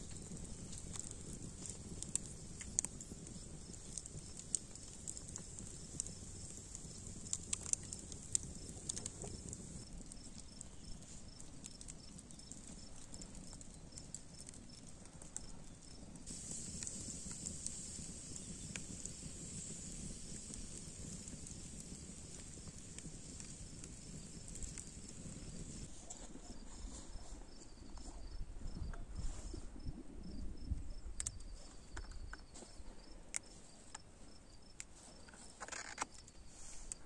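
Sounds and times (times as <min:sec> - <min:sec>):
sharp fire pops: 0:00.0 - 0:14.5, 0:16.2 - 0:25.9
wood fire crackling: 0:00.0 - 0:26.2
low hiss: 0:16.2 - 0:25.9.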